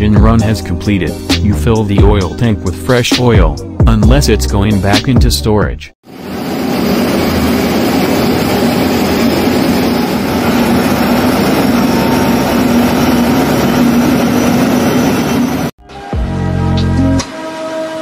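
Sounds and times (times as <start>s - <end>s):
jet engine rushing with low hum: 6.1s - 15.8s.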